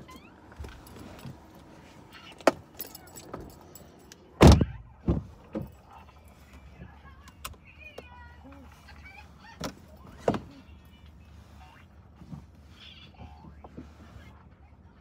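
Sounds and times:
car door thump: 4.4 - 5.7.

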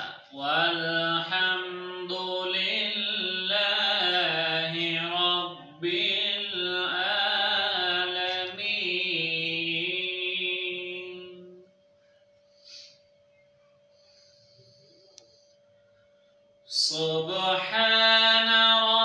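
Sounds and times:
man chanting melodically: 0.0 - 11.6, 16.7 - 19.0.

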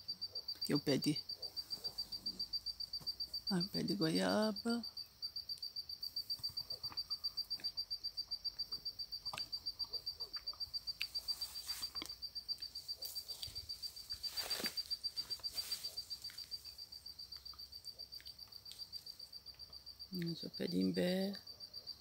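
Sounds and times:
insect chirping in pulses: 0.0 - 22.0
rustling noise: 11.1 - 16.8.

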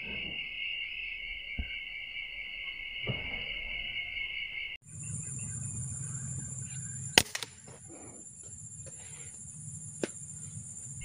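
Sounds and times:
insects droning: 0.0 - 11.0
air rifle firing: 7.2 - 7.7.

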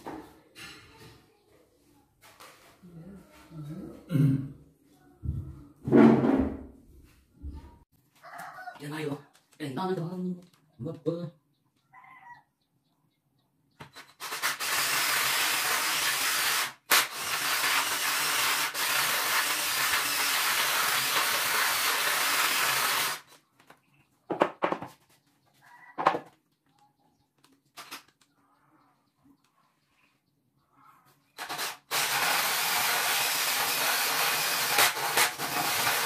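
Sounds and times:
drill boring through wood: 14.2 - 23.3, 31.4 - 36.0.

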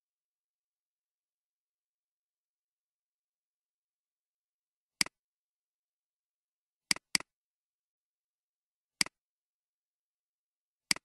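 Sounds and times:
computer mouse button clicks: 6.9 - 7.3.

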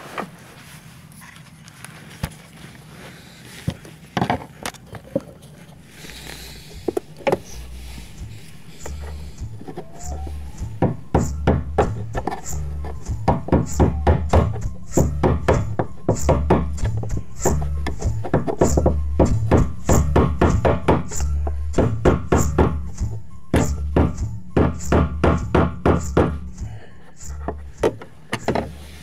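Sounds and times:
background music with bass and beat: 6.5 - 29.0.

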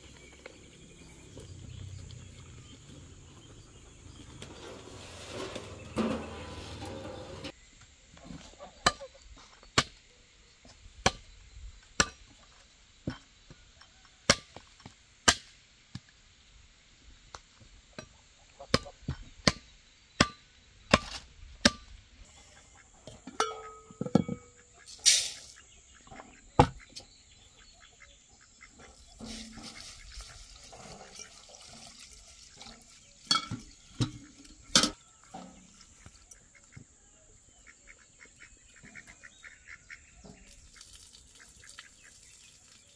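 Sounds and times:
metal pot lids clattering: 4.5 - 7.5, 23.1 - 25.6, 33.2 - 35.6.

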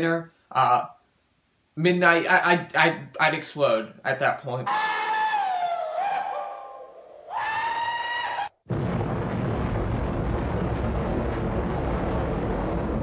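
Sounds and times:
explosion blast: 8.7 - 13.0.

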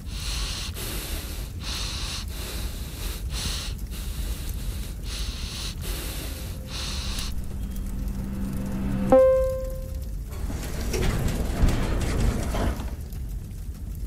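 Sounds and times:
person breathing hard: 0.0 - 7.4
low steady hum: 3.8 - 10.9.

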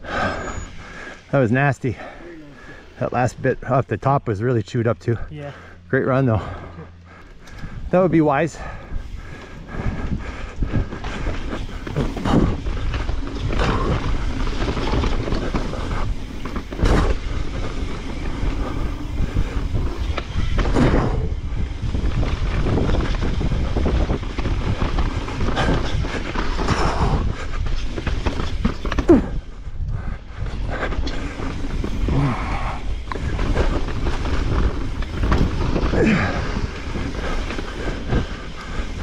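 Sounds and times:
tyres rumbling on dirt: 0.0 - 39.0
wind on microphone: 7.3 - 39.0
bike knocks and rattles: 10.6 - 29.5, 32.9 - 39.0.

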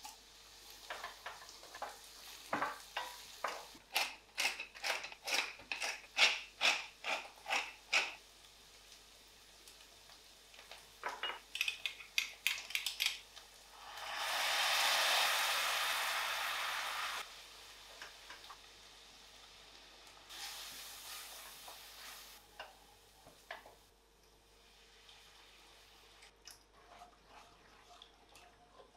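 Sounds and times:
food sizzling in a frying pan: 0.0 - 4.2, 5.4 - 23.9
wooden spoon scraping a pan: 26.7 - 28.9.

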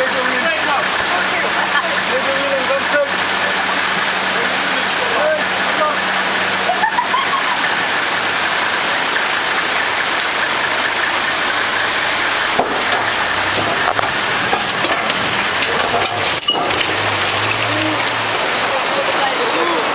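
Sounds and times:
engine running low: 0.0 - 19.9
rushing water: 0.0 - 19.9
sharp knocks: 12.5 - 17.0.

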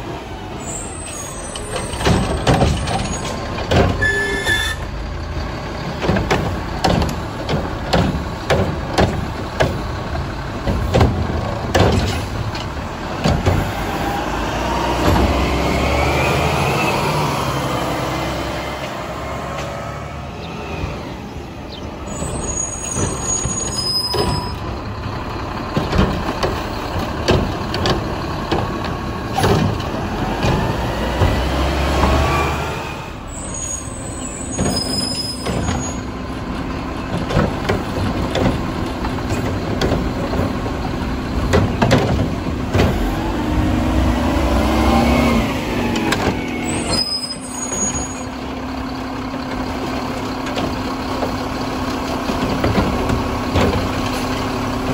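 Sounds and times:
diesel truck engine: 0.0 - 54.9
metal clanks and bangs: 1.3 - 4.3, 5.8 - 14.0, 22.1 - 32.2, 33.8 - 44.2, 49.4 - 54.9.

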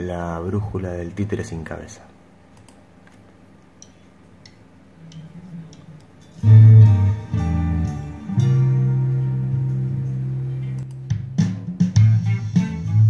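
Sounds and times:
rock song playing: 6.4 - 13.0.

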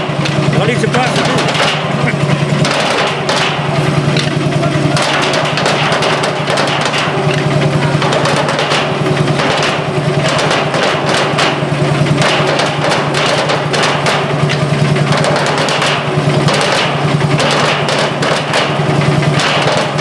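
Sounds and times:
stationary engine running: 0.0 - 20.0
sticks drumming on oil barrels: 0.0 - 20.0.

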